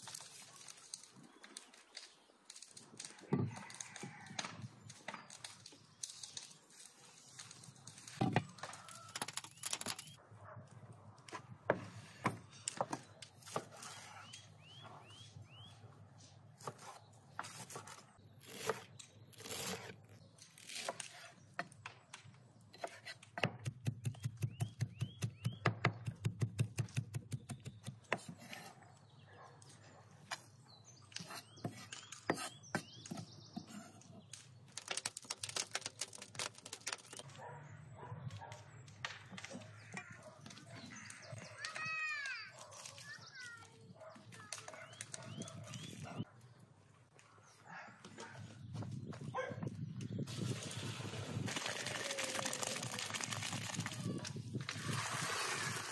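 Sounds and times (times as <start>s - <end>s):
birds chirping: 12.5s - 16.0s, 23.9s - 26.3s, 28.8s - 34.8s, 37.2s - 50.2s.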